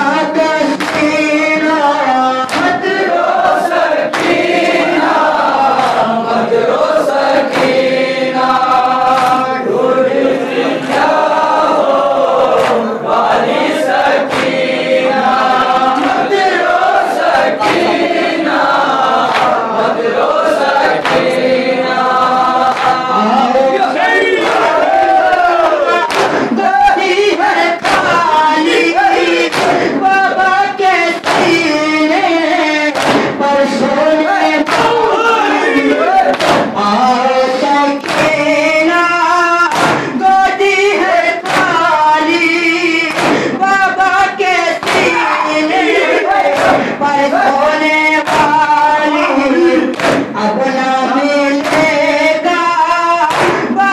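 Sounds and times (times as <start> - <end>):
people chanting in unison: 0.0 - 53.9
chest-beating slaps: 0.7 - 1.3, 2.5 - 3.5, 4.1 - 6.2, 7.4 - 9.6, 10.8 - 19.7, 20.8 - 21.5, 22.7 - 23.2, 26.0 - 27.1, 27.8 - 30.3, 31.2 - 31.7, 32.9 - 33.5, 34.6 - 35.1, 36.3 - 36.9, 38.0 - 38.6, 39.7 - 40.5, 41.4 - 43.6, 44.8 - 45.6, 46.4 - 47.0, 48.2 - 50.4, 51.6 - 52.1, 53.3 - 53.8.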